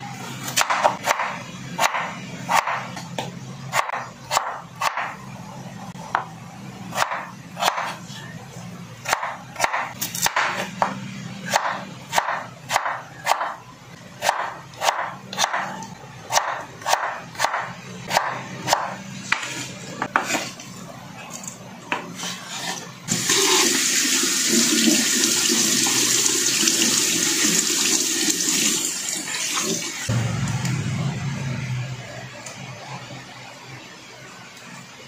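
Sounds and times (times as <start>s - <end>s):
knife chopping on cutting board: 0.5s - 2.9s, 9.1s - 13.5s, 14.2s - 20.5s
tap water running into sink: 23.1s - 30.0s.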